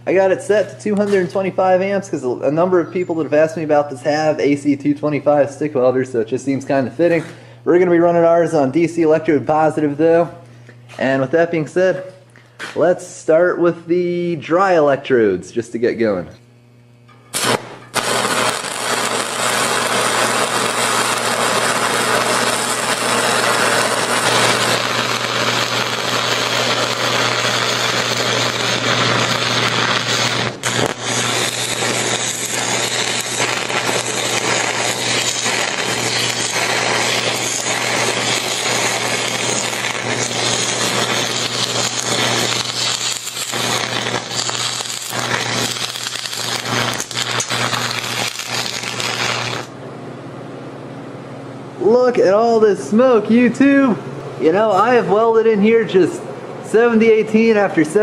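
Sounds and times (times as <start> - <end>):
welding arc crackling and hissing: 0.0 - 10.3, 16.7 - 49.8.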